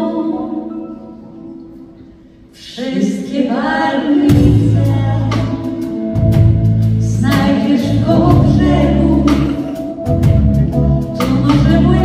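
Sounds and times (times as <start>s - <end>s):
live pop band: 2.6s - 12.0s
drums and bass guitar: 4.3s - 12.0s.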